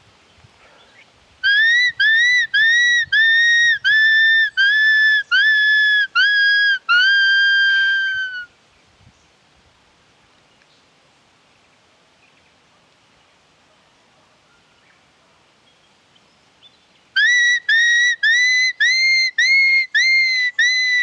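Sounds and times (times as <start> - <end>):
whistle yelping notes: 1.4 - 8.5, 17.2 - 21.0.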